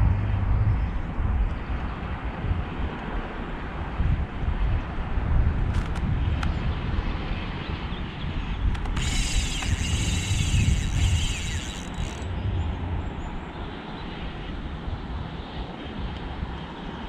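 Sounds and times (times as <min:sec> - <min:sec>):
wind buffeting microphone: 0:00.0 - 0:17.0
fishing reel whirring: 0:08.8 - 0:12.5.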